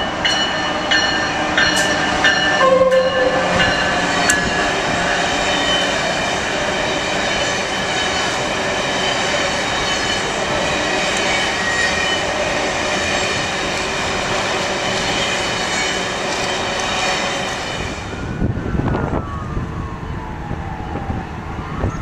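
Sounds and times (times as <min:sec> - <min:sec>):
train wheels rushing on rail: 0:00.0 - 0:18.4
thin high-pitched tones: 0:02.6 - 0:04.7.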